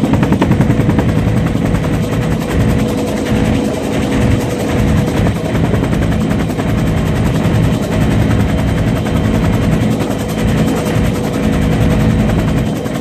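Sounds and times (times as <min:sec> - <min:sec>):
helicopter rotor and engine: 0:00.0 - 0:13.0.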